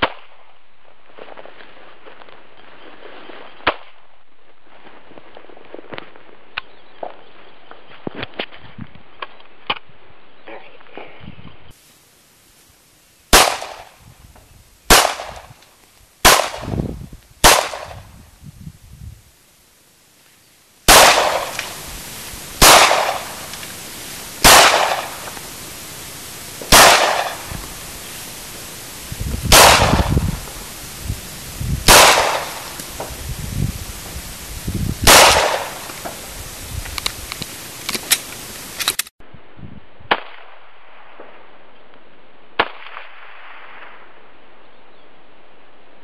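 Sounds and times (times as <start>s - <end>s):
pistol shots: 13.3s - 13.9s, 14.9s - 15.5s, 16.2s - 16.8s, 17.4s - 18.0s, 20.9s - 21.8s, 22.6s - 23.5s, 24.4s - 25.3s, 26.7s - 27.5s, 29.5s - 30.2s, 31.9s - 32.8s, 35.0s - 35.9s.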